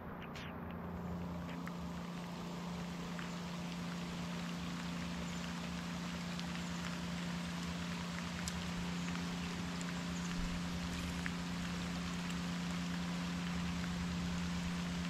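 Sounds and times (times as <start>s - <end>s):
light rain hissing: 0.0s - 15.0s
steady low hum: 0.0s - 15.0s
raindrop ticks: 0.4s - 15.0s.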